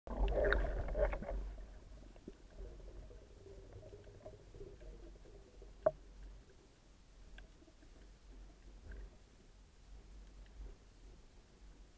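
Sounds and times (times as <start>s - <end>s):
low underwater rumble: 0.1s - 11.9s
faint clicks: 7.2s - 9.2s, 9.9s - 10.8s.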